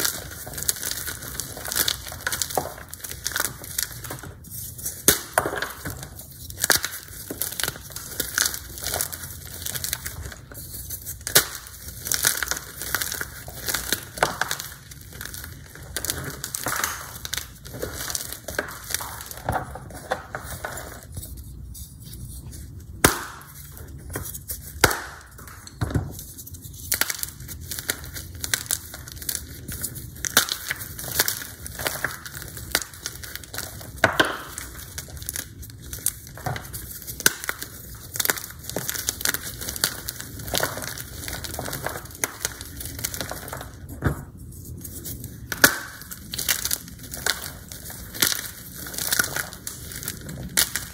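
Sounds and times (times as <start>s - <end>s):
chalk crunching and crackling: 0.0s - 50.9s
chalk chunks snapping: 23.0s - 25.8s, 26.6s - 43.8s.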